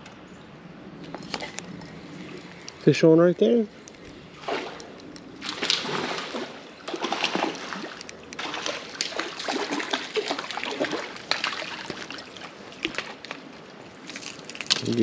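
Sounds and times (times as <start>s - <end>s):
fish splashing at water surface: 4.4s - 13.4s.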